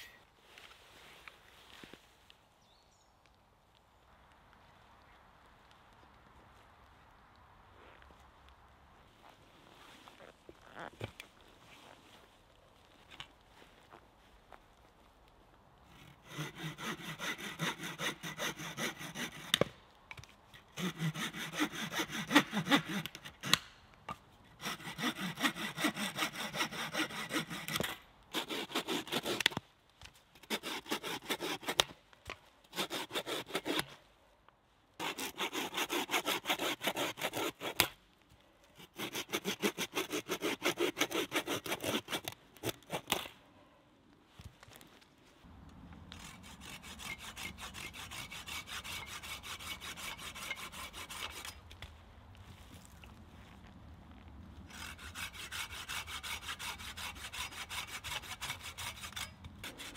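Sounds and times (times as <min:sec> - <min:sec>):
saw cutting stick: 0:16.0 - 0:19.7, 0:20.7 - 0:23.7, 0:24.6 - 0:29.6, 0:30.4 - 0:32.0, 0:32.7 - 0:34.0, 0:35.0 - 0:38.0, 0:38.8 - 0:43.3, 0:46.1 - 0:51.6, 0:54.7 - 0:59.9.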